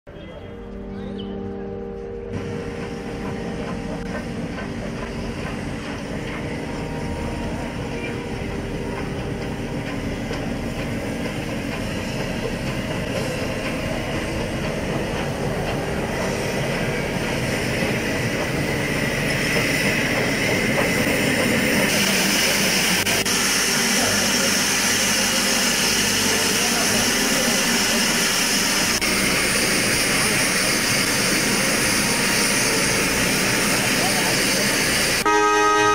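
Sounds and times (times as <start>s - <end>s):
people talking: 0.1s - 1.8s, 22.9s - 28.3s, 29.7s - 32.3s, 33.5s - 35.2s
steam locomotive mechanical noise: 0.3s - 35.9s
loud steam hiss: 4.8s - 35.4s.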